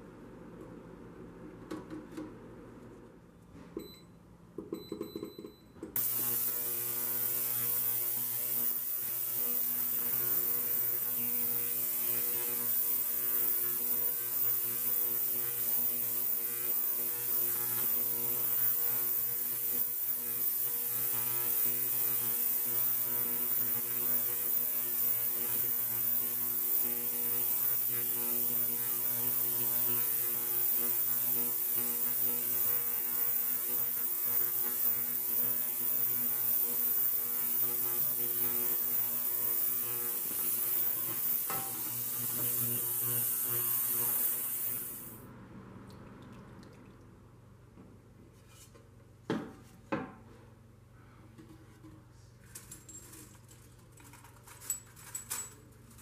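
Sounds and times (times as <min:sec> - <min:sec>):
electric machine humming and hissing: 0:05.9 - 0:45.4.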